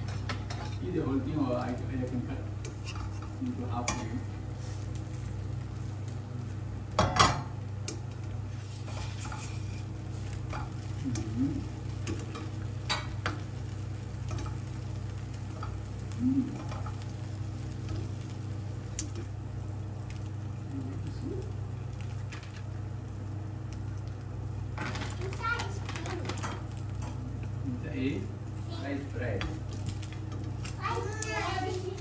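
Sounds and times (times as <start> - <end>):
bread frying in a pan: 0.0 - 32.0
steady low hum: 0.0 - 32.0
spatula scraping a pan: 2.6 - 4.9, 8.5 - 11.0.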